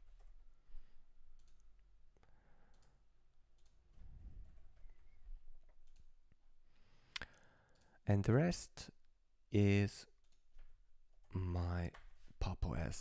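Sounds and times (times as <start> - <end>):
keyboard and mouse clicks: 1.3 - 6.4, 10.2 - 12.2.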